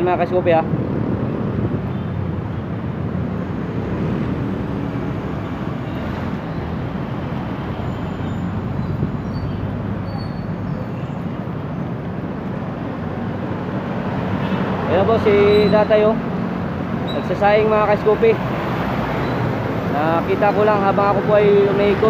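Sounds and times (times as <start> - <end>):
busy road traffic: 0.0 - 22.0.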